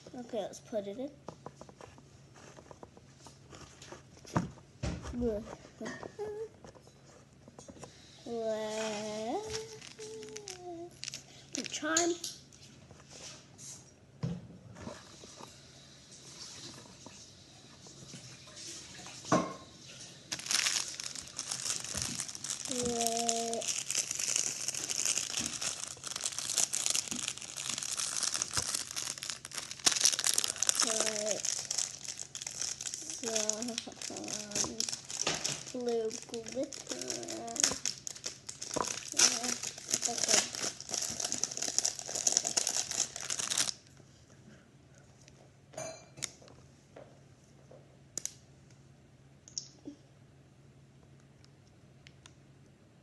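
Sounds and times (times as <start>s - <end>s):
plastic bag crinkling: 8.3s - 12.2s, 20.3s - 43.9s.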